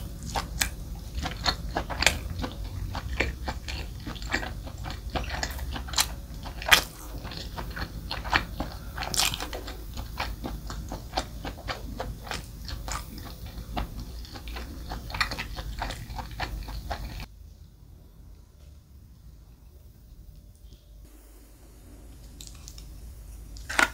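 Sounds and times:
chewing food: 0.0 - 17.3, 22.1 - 23.9.

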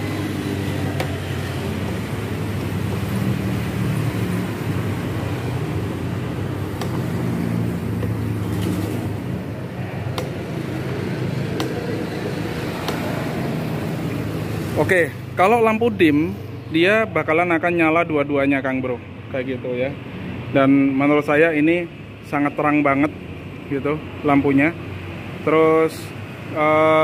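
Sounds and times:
vehicle engine rumbling: 0.0 - 18.2.

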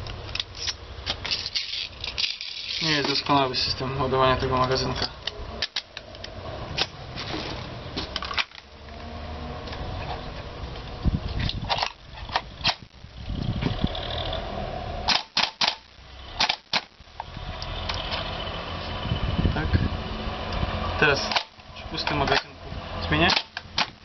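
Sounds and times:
airsoft rifle clicks and clacks: 15.1 - 16.9, 23.2 - 24.0.

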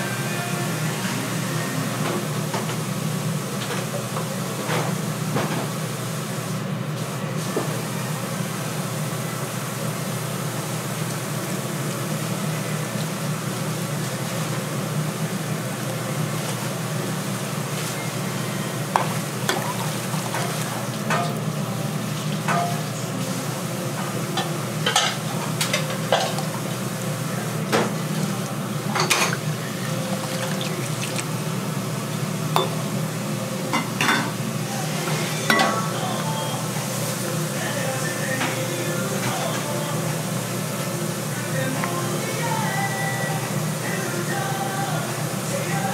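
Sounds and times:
utensils and dishes clinking: 19.0 - 21.6, 22.2 - 23.1, 24.3 - 26.8, 27.6 - 31.3, 32.5 - 32.9, 33.7 - 34.4, 35.0 - 36.6.

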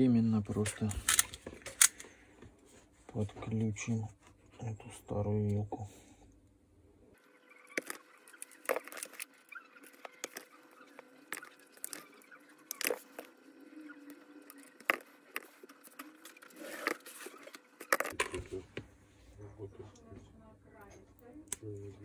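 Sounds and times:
cable rustling: 7.6 - 18.8.

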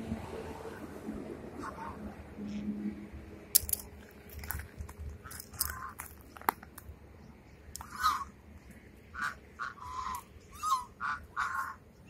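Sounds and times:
geese honking: 1.5 - 2.7, 7.8 - 8.4, 9.1 - 12.0.

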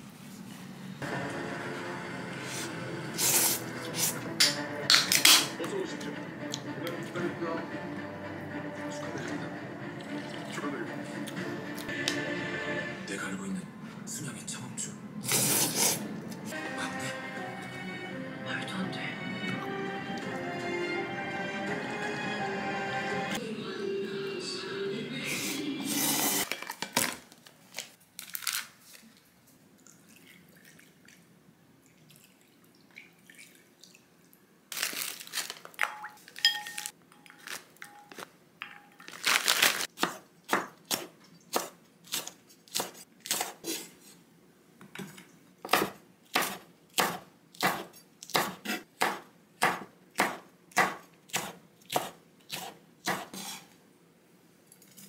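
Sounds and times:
plastic bag rustling: 26.4 - 29.2, 34.7 - 38.3, 39.0 - 39.9.

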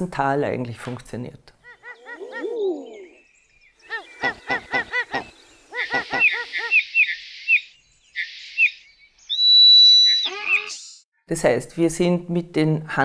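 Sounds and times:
high chirping notes: 6.2 - 11.0.

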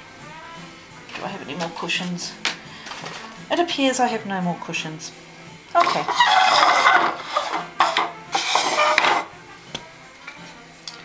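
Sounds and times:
rummaging through a box: 5.8 - 9.3.

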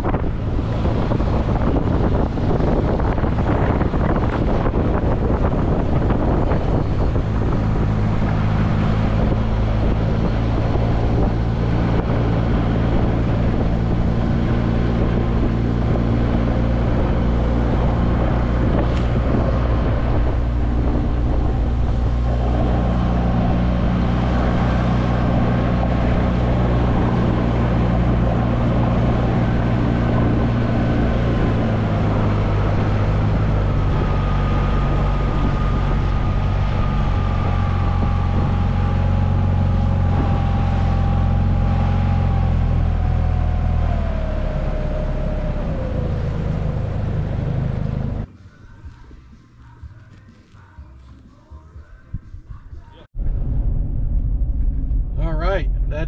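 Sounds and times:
rushing water: 0.0 - 43.6
outboard motor running: 0.0 - 48.2
wind buffeting microphone: 0.0 - 48.3, 51.8 - 56.0.

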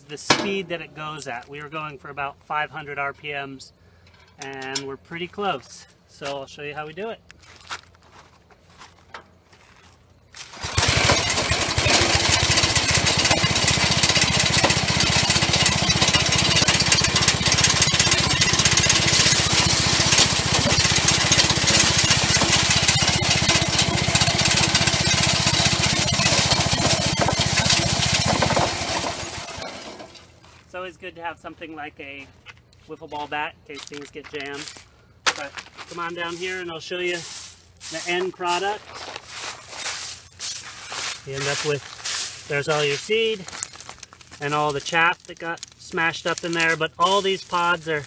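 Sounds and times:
bean plants being smashed: 10.4 - 30.1, 39.8 - 47.8
thresher engine running: 10.5 - 30.3.

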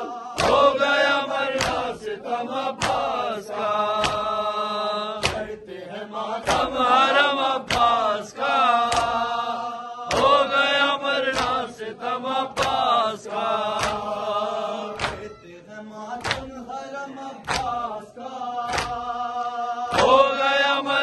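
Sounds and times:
voices chanting a lament: 0.0 - 21.0
hands beating chests: 0.4 - 0.8, 1.5 - 2.0, 2.8 - 3.2, 3.9 - 4.3, 5.2 - 5.6, 7.6 - 8.0, 13.7 - 14.2, 14.9 - 15.4, 16.2 - 16.6, 17.4 - 17.9, 18.7 - 19.1.

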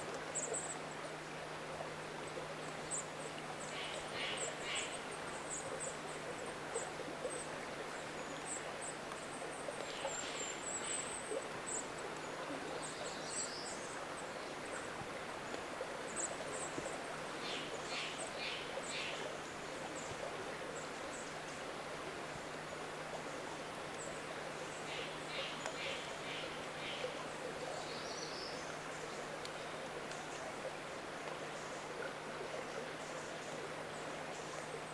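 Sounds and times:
songbirds chirping: 0.0 - 34.9.

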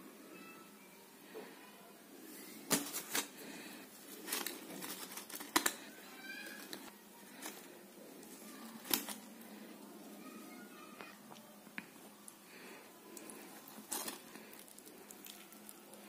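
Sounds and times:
aluminium foil crinkling: 2.4 - 9.6, 12.5 - 16.0
hands tearing flatbread: 2.7 - 9.5.

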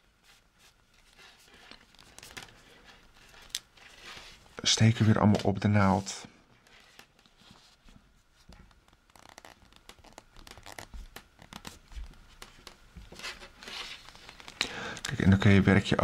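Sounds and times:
yarn rustling: 7.4 - 14.6.

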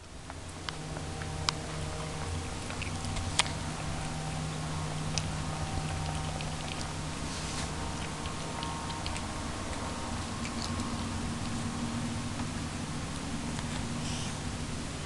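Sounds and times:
steady low hum: 0.0 - 15.0
cat eating from a tub: 0.3 - 14.0.

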